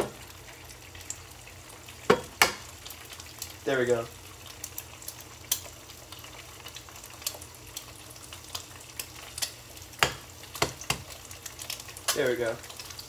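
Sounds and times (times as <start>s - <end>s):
egg sizzling in oil: 0.0s - 13.0s.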